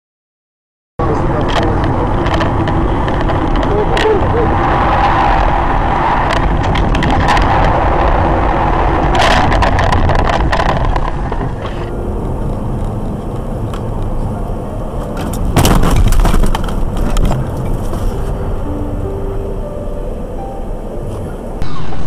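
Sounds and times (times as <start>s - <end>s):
car road and engine noise: 1.0s - 22.0s
sharp clicks and crackles: 1.3s - 14.3s
loud burst of noise: 2.0s - 11.9s.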